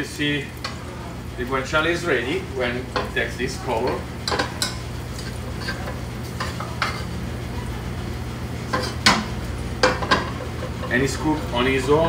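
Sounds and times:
fat sizzling: 0:00.0 - 0:12.0
steady low hum: 0:00.0 - 0:12.0
metal tongs scraping a pan: 0:02.9 - 0:07.2, 0:08.7 - 0:09.2.

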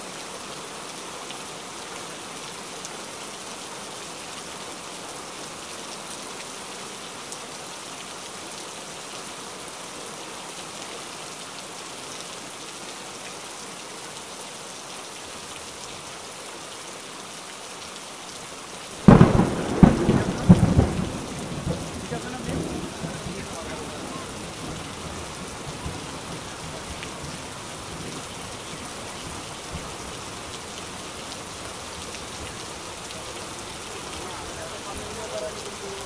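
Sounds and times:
heavy rain falling: 0:00.0 - 0:36.0
thunder cracks and rumble: 0:19.0 - 0:28.2.

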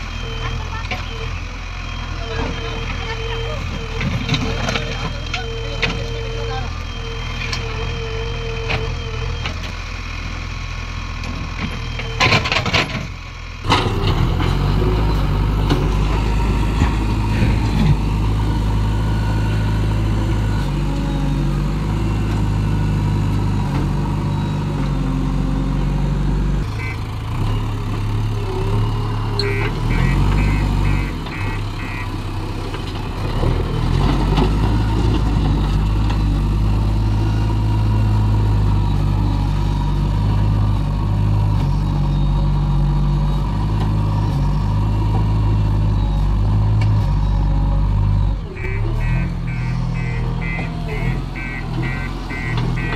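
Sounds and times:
backhoe diesel engine working: 0:00.0 - 0:52.9
high beeps: 0:29.4 - 0:32.2, 0:48.2 - 0:52.9.

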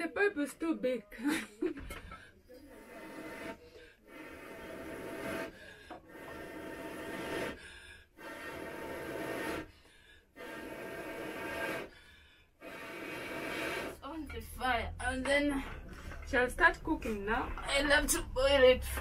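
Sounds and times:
person blowing through a pipe: 0:08.2 - 0:09.7, 0:10.4 - 0:12.0, 0:12.6 - 0:14.0.

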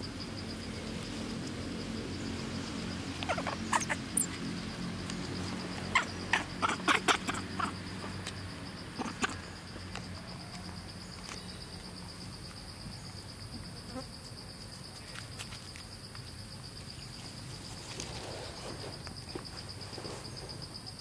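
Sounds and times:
high insect trill: 0:00.0 - 0:21.0
sharp squeaks and crackles: 0:03.2 - 0:04.5.

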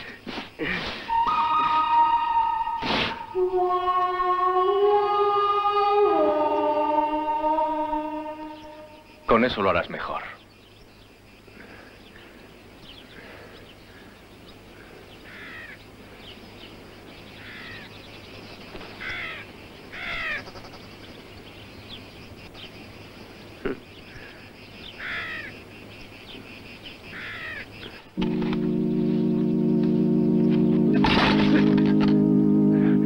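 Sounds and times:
crows cawing: 0:13.2 - 0:15.8, 0:17.4 - 0:17.9, 0:19.0 - 0:20.7, 0:25.0 - 0:25.6, 0:27.1 - 0:28.0.

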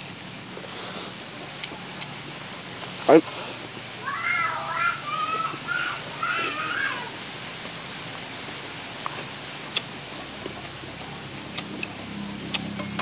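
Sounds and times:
steady background hiss: 0:00.0 - 0:13.0
chewing and lip-smacking: 0:00.5 - 0:03.8, 0:08.4 - 0:13.0.

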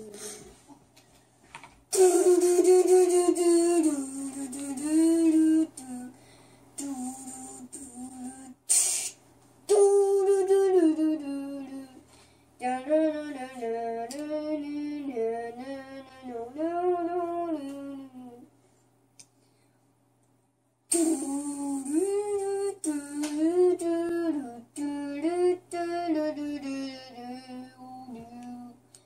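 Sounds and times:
boy singing: 0:01.9 - 0:06.2, 0:06.8 - 0:12.0, 0:12.6 - 0:18.5, 0:20.9 - 0:28.8.

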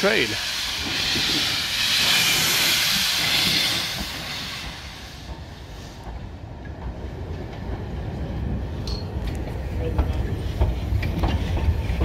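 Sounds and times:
steam locomotive hissing: 0:00.0 - 0:08.7
train rumbling on rails: 0:00.0 - 0:12.0.

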